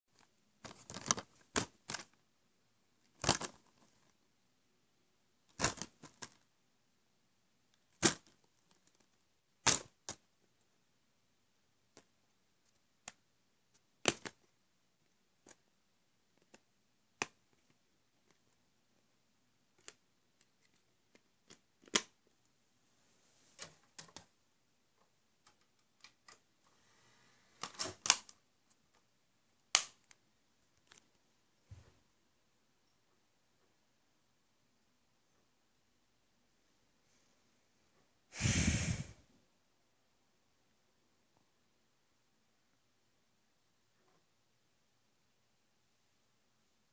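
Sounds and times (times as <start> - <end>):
plastic case clicks and rustles: 0.6 - 2.2, 3.1 - 4.0.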